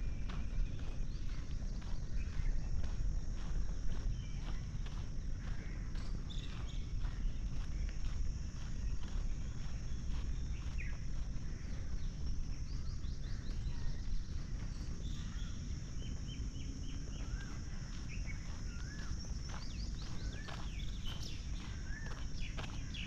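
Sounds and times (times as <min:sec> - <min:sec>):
footsteps on paved path: 0:00.0 - 0:23.0.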